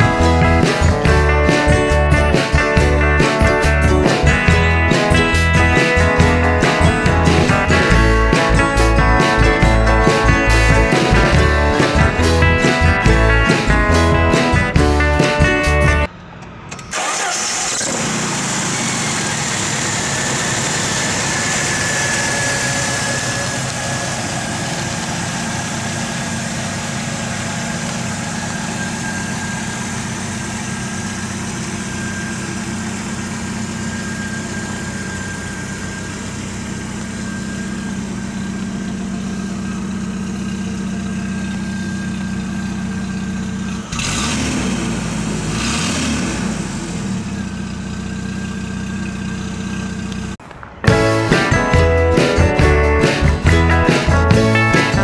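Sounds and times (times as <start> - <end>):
car engine starting and idling: 0.0 - 55.0
faint high whine: 19.0 - 43.4.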